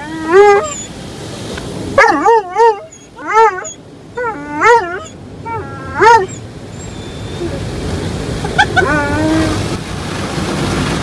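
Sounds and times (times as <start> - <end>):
dog barking and whining: 0.0 - 1.0, 1.9 - 7.7, 8.6 - 9.7.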